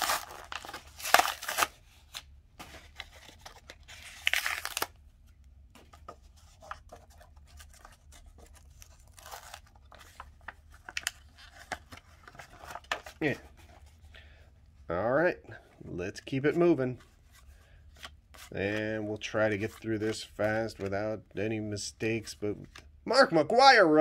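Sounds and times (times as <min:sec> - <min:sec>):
plastic wrapping tearing and crinkling: 0:00.0 - 0:02.2, 0:02.9 - 0:04.9, 0:08.7 - 0:10.0
cards clicking and rustling: 0:00.0 - 0:04.9, 0:05.8 - 0:13.8, 0:17.9 - 0:21.1.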